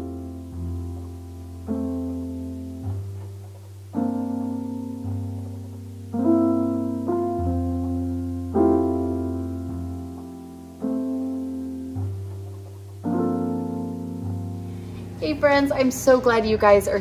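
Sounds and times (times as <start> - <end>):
held low bass notes: 0.0 - 17.0
slow piano chords: 0.0 - 17.0.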